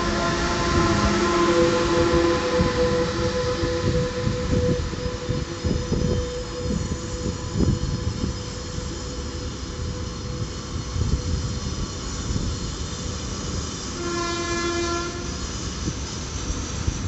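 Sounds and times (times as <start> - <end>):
train horn blast: 0.0 - 9.2, 14.0 - 15.4
faint steady whine: 0.0 - 17.0
train wheels rumbling: 0.0 - 17.0.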